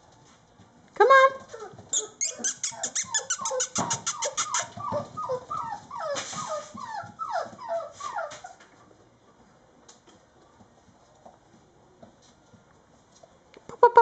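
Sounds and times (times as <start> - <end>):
puppies whining: 1.5 - 8.8.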